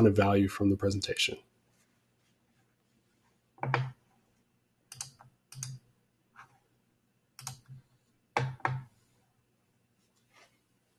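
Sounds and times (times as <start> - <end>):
computer keyboard or mouse clicks: 3.6 - 3.9, 4.9 - 5.8, 7.4 - 7.8.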